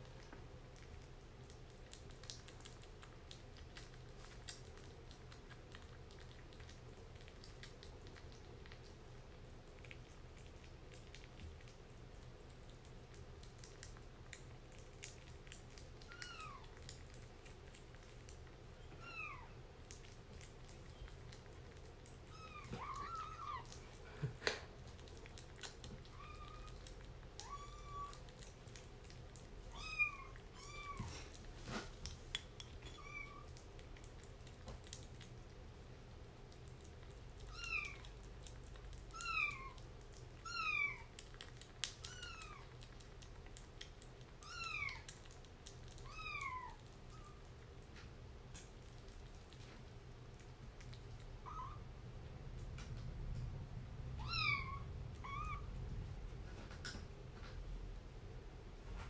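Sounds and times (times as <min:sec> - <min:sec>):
kitten mewing: 0:22.3 - 0:24.3, 0:25.6 - 0:28.3, 0:29.7 - 0:31.4, 0:51.4 - 0:51.9, 0:54.2 - 0:55.7.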